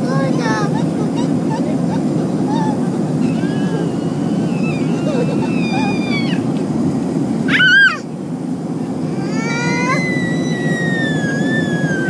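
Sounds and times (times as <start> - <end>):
airliner cabin noise: 0.0 - 12.0
toddler crying and squealing: 2.5 - 6.5, 7.5 - 8.1, 9.1 - 12.0.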